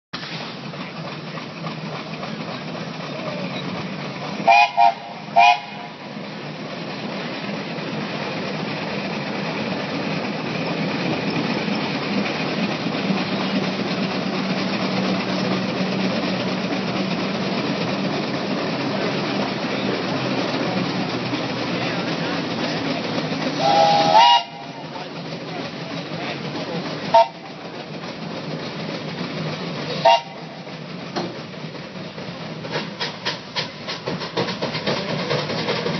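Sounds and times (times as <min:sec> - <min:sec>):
steam engine working: 0:00.2 - 0:35.9
steam whistle toots: 0:04.4 - 0:06.0, 0:23.6 - 0:24.9, 0:27.1 - 0:27.5, 0:30.0 - 0:30.5.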